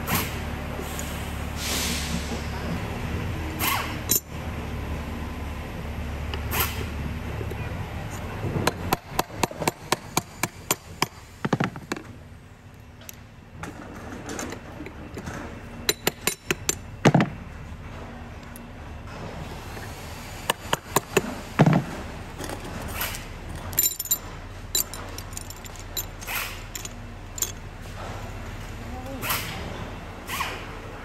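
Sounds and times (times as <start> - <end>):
metal clinks and knocks: 13.0 - 17.4, 20.7 - 27.7
heavy metal thunks: 17.0 - 17.5, 21.6 - 22.2.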